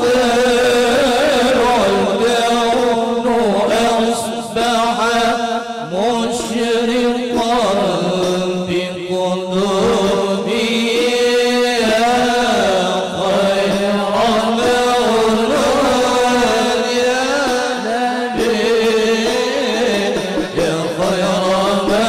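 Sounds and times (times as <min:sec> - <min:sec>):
devotional chant singing: 0:00.0 - 0:22.0.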